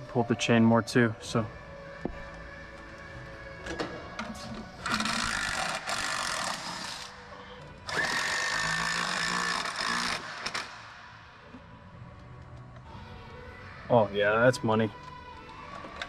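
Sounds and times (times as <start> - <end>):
power driver whining: 2.0 - 11.7.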